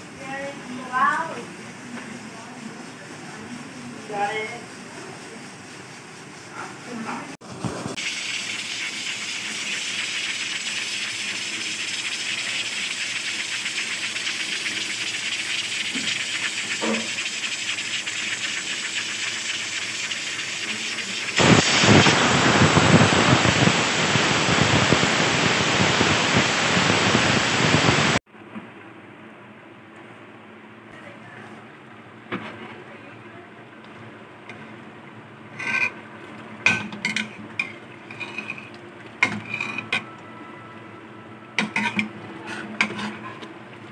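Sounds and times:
pressure cooker hissing: 0.0 - 28.2, 41.5 - 43.9.

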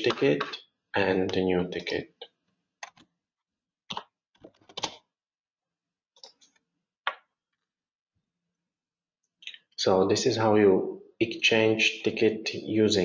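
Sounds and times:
keyboard keystrokes and clicks: 2.8 - 3.1, 3.9 - 5.0.

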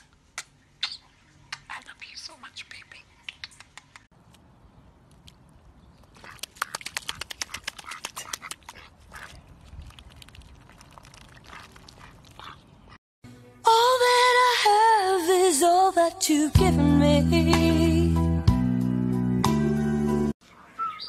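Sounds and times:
ducks quacking: 6.2 - 9.4, 11.4 - 13.0.

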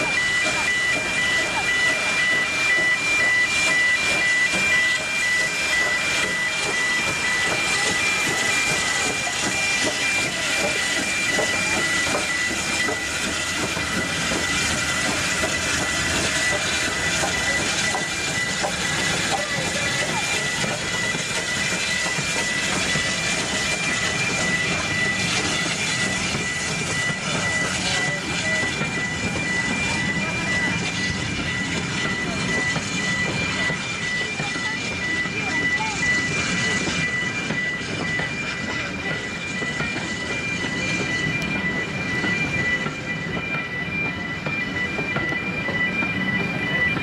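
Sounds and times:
steam hiss: 0.0 - 39.2
level crossing warning tone: 0.0 - 47.0
rail noise: 0.0 - 47.0.

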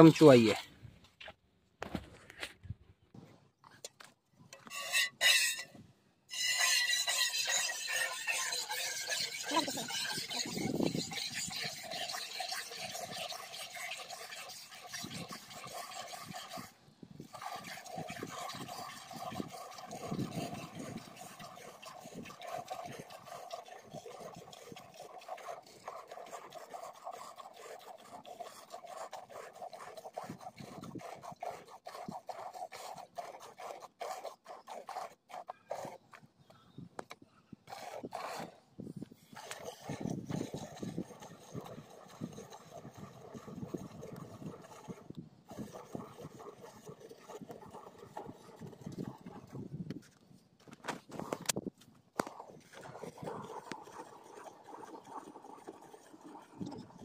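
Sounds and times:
milk squirting into steel pail: 6.4 - 35.1, 39.3 - 49.7, 52.2 - 57.0.

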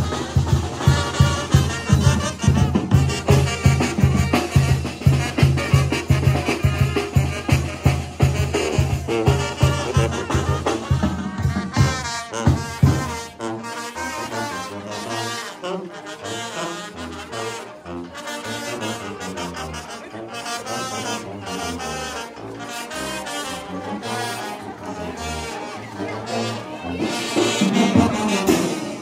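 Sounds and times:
steady drum beat: 0.0 - 13.4, 26.9 - 29.0
brass melody: 0.0 - 29.0
low brass bass line: 0.0 - 29.0.

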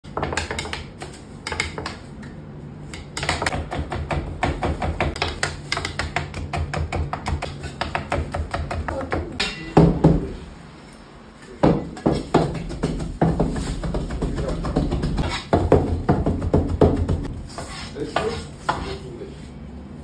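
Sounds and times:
knife chopping on cutting board: 3.0 - 10.3, 11.6 - 18.9.

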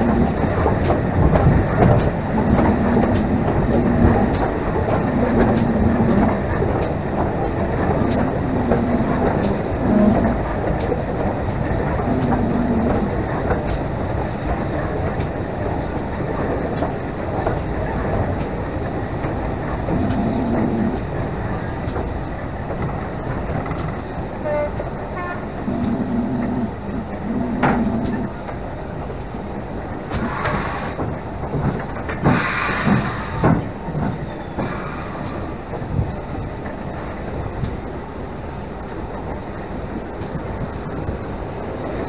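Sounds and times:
locomotive clanks: 0.0 - 42.0
steam locomotive wheels rumbling: 0.0 - 42.0
steam hiss: 29.4 - 31.3, 32.2 - 42.0.

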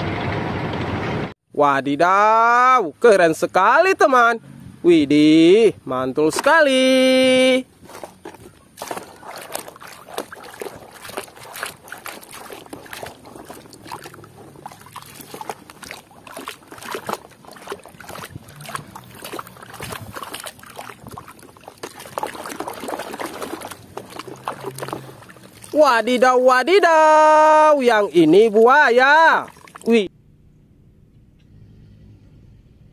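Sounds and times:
water sloshing in a basin: 6.2 - 30.1
hand scrubbing toy in water: 6.3 - 30.1.

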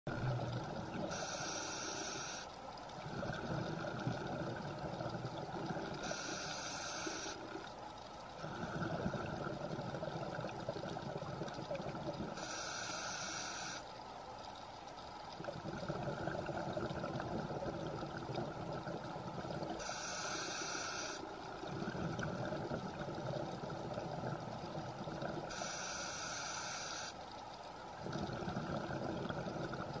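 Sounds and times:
bubbling exhaled air: 0.1 - 13.8, 15.3 - 27.2, 27.9 - 30.0
regulator hissing inhale: 1.1 - 2.5, 5.9 - 7.5, 12.3 - 13.9, 19.7 - 21.4, 25.5 - 27.2.

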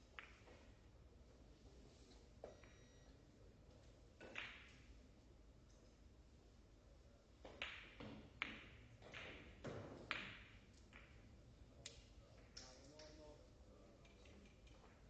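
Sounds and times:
cue striking ball: 7.5 - 11.2.

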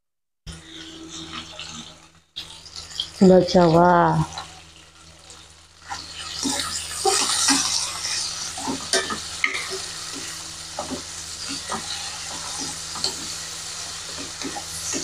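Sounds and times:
vegetables sizzling in hot oil: 0.5 - 15.0
spatula scraping and tapping a wok: 5.8 - 15.0.

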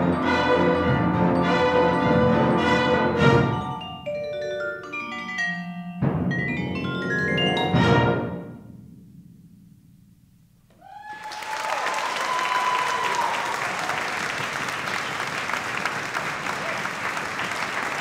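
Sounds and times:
vibraphone and wind ensemble: 0.0 - 8.8
audience cheer: 10.8 - 18.0
audience applause: 10.9 - 18.0.

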